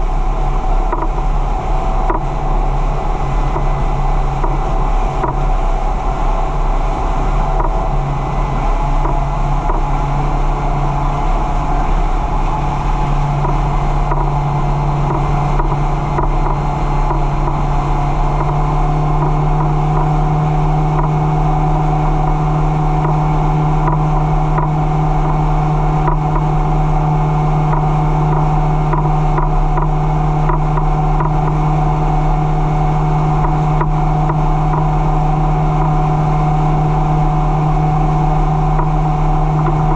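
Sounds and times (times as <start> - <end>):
boat engine running: 0.0 - 39.9
water rushing along hull: 0.0 - 39.9.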